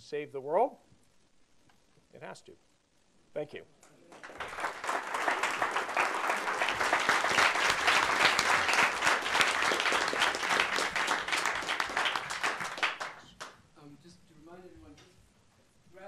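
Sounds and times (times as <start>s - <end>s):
audience clapping: 4.1s - 13.6s.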